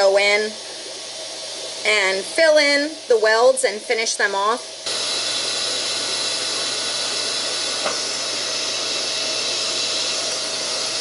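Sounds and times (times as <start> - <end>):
arc welder hissing: 4.8 - 11.0.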